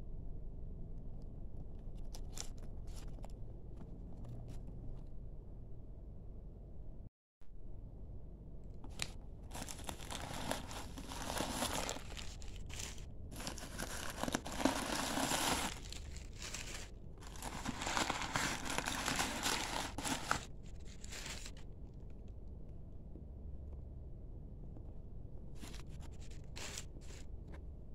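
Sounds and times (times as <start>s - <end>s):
packing stuffing crinkling: 8.9s - 21.6s, 25.6s - 27.2s.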